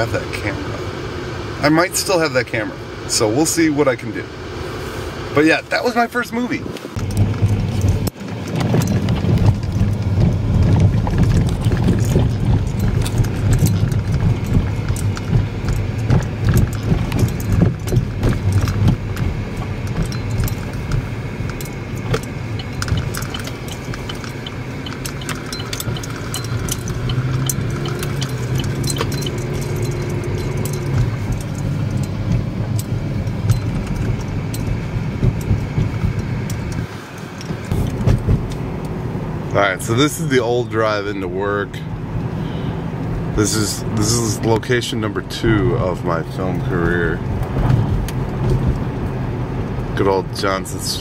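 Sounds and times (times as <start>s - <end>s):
car engine note: 0.0s - 51.0s
road rumble in car cabin: 0.0s - 51.0s
keys jingling: 11.6s - 38.0s.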